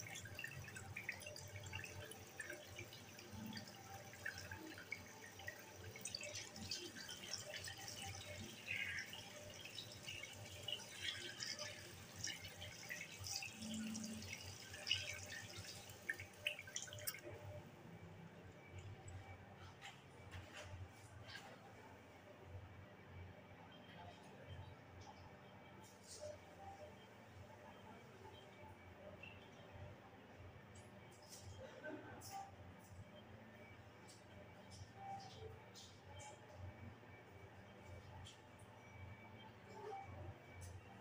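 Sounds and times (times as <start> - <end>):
water splashing at a sink: 0.0 - 17.3.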